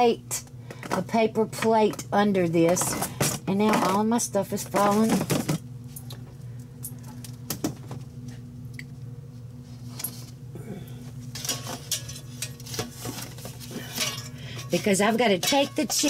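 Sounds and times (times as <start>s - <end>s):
steady low hum: 0.0s - 16.0s
kitchenware clicking and clattering: 11.4s - 16.0s.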